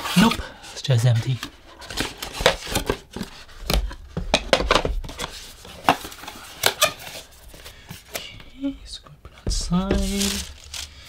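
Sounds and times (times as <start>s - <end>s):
cardboard box knocking: 9.5s - 10.2s.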